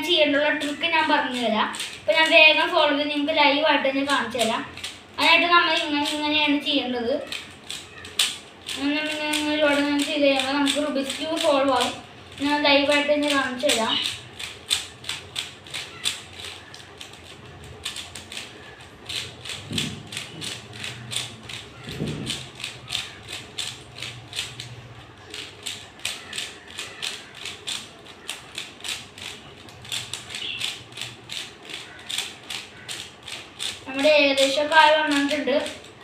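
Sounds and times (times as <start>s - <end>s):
plastic puzzle cube clicking: 0.1s - 3.4s, 4.0s - 36.0s.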